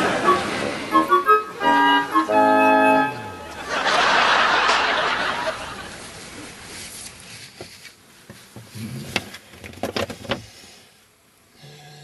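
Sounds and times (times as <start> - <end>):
paper map rustling: 6.0 - 8.7.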